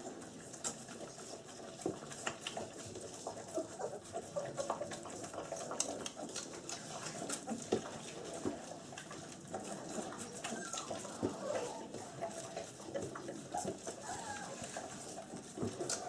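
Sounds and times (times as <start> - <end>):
puppies smacking and lapping: 0.0 - 16.0
puppy grunts and squeaks: 3.2 - 6.4, 9.9 - 12.4, 13.4 - 15.2.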